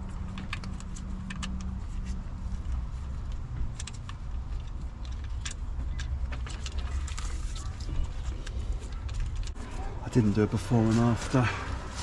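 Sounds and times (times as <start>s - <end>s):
tools clicking and tapping on parts: 0.0s - 7.0s
steady low rumble: 0.0s - 12.0s.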